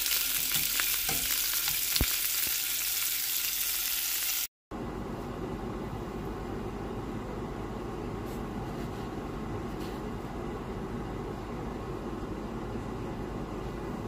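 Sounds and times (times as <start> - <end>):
hot dogs sizzling in oil: 0.0 - 4.5.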